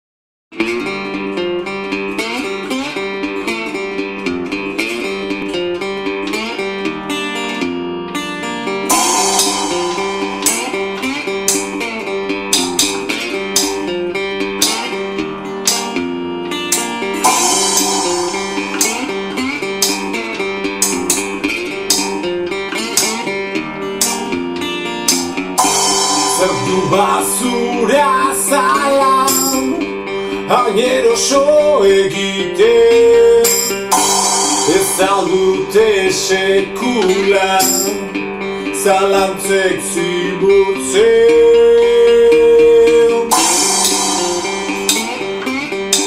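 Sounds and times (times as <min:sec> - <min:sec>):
resonator guitar riff: 0:00.6 - 0:46.0
drum kit with cymbals: 0:08.9 - 0:13.9, 0:14.6 - 0:15.0, 0:15.6 - 0:16.0, 0:16.7 - 0:22.2, 0:22.9 - 0:23.3, 0:24.0 - 0:24.4, 0:25.0 - 0:29.8, 0:33.4 - 0:35.7, 0:37.6 - 0:38.1, 0:43.3 - 0:46.0.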